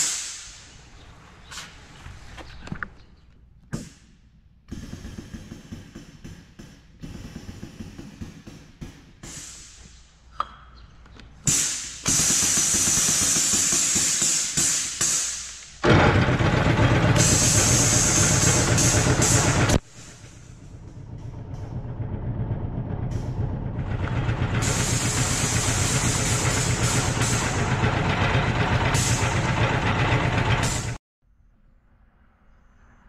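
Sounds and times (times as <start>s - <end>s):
air hiss: 0.0s - 0.7s, 9.2s - 10.1s, 11.5s - 15.8s
low running rumble: 15.8s - 31.0s.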